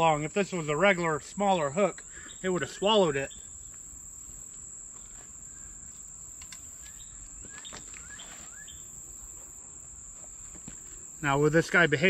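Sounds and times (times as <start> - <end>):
insects droning: 0.0 - 12.0
bird chirps: 6.8 - 8.9.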